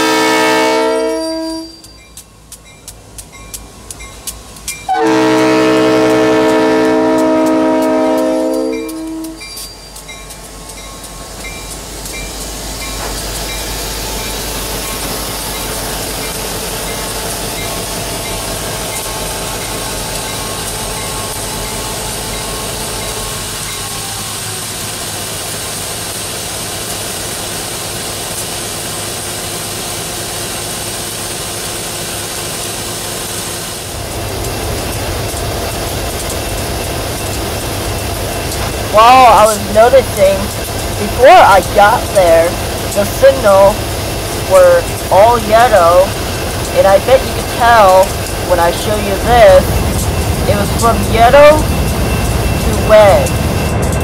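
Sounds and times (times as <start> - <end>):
locomotive air horn blast: 0.0 - 1.8, 4.9 - 9.4
rolling freight cars: 0.0 - 54.0
diesel engines rumbling: 33.8 - 54.0.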